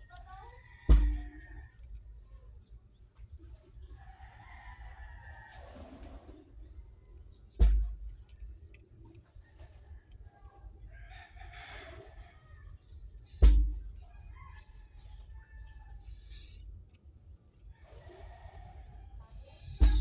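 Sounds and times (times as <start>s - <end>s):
small birds chirping: 0.0s - 5.6s, 6.3s - 20.0s
loud sharp thump: 0.9s - 1.4s, 7.6s - 8.0s, 13.4s - 13.9s, 19.8s - 20.0s.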